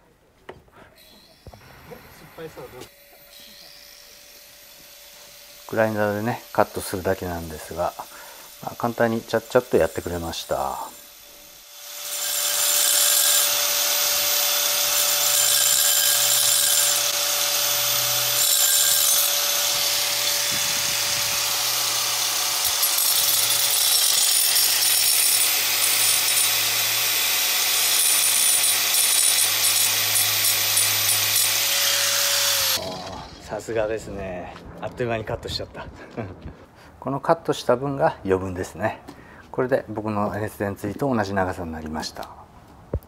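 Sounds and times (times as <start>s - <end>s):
angle grinder motor whine: 1.0s - 7.0s, 11.6s - 33.6s.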